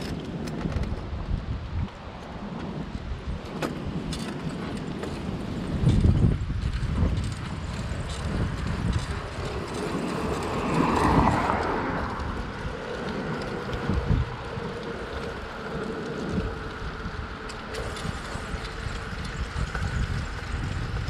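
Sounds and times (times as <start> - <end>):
low rumbling road noise: 0.0 - 21.0
wind buffeting microphone: 0.0 - 21.0
car passing: 7.0 - 21.0.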